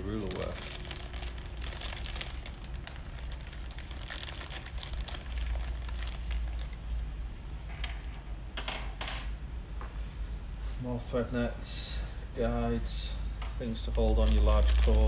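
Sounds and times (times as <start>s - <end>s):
plastic bags crinkling: 0.0s - 7.1s, 13.7s - 15.0s
low steady rumble: 0.0s - 15.0s
small clicks and crackles: 0.2s - 6.8s, 13.8s - 15.0s.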